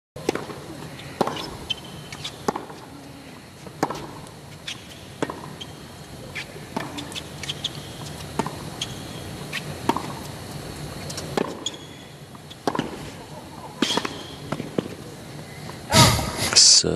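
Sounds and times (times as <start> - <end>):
ball bouncing: 0.2 - 0.6, 6.7 - 8.6, 12.6 - 13.0
racquets hitting tennis ball: 0.2 - 3.0, 3.6 - 15.0
shoe squeaks: 0.9 - 2.5, 4.6 - 9.7, 11.0 - 12.6, 13.8 - 14.5.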